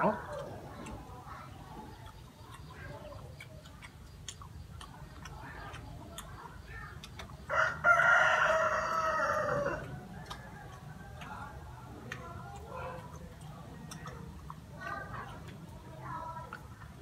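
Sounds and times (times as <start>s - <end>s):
chewing and handling food: 0.0s - 17.0s
rooster crowing: 7.5s - 9.9s.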